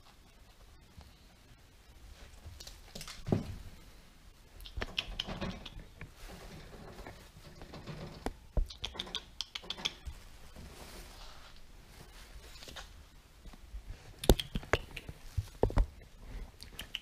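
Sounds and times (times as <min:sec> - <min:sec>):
rustling and light taps: 0:09.8 - 0:16.1.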